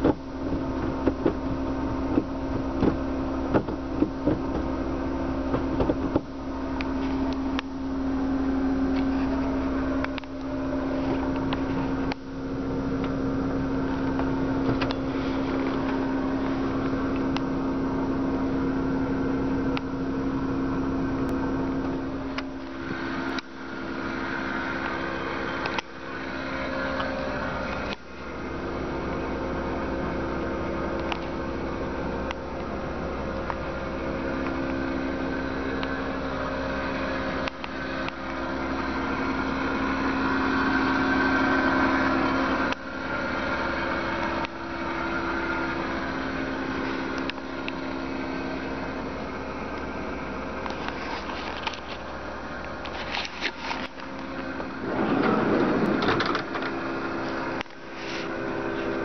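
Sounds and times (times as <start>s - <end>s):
van engine idling: 0.0s - 59.0s
loud scuffing noise: 57.2s - 59.0s.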